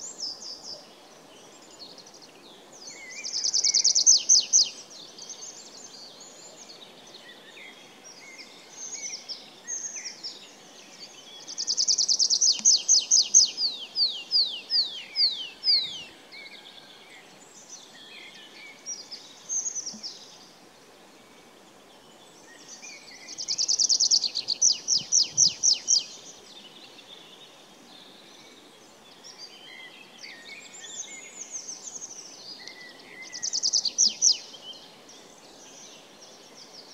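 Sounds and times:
low outdoor hiss: 0.0 - 36.9
bird singing trills: 11.5 - 16.1, 22.8 - 26.2, 32.6 - 34.5.

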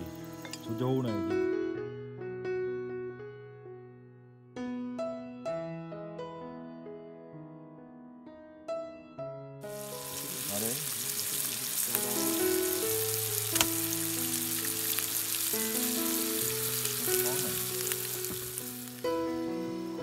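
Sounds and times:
steak sizzling in a frying pan: 9.6 - 20.0.

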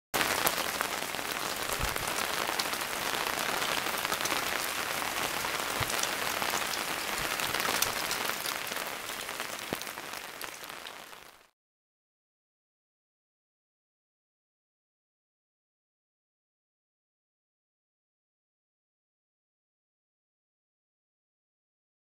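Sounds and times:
heavy rain pouring: 0.2 - 11.5
rain drop impacts: 0.2 - 11.5.

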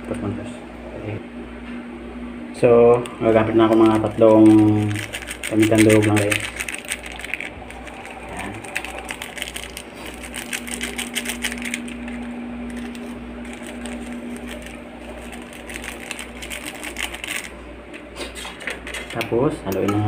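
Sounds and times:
low pulsing hum: 0.0 - 18.2
pepper crackling and rustling: 3.3 - 17.6.

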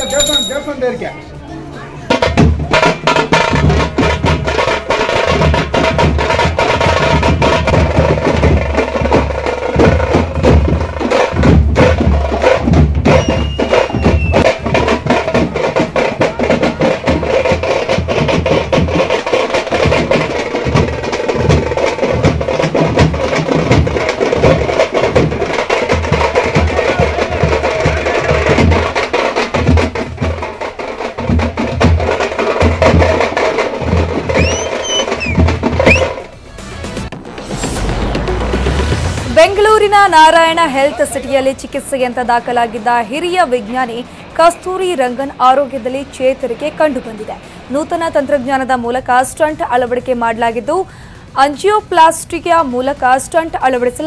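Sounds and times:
fast loud drumming: 2.1 - 41.1.

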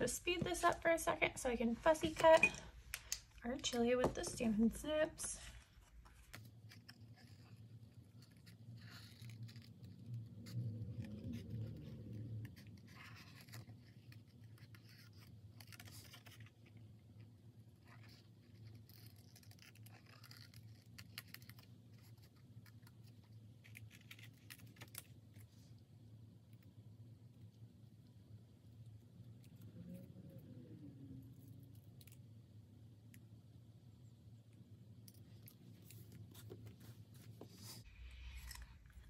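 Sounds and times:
low steady hum: 0.0 - 8.6, 24.9 - 39.0
paper handling: 35.7 - 39.0.

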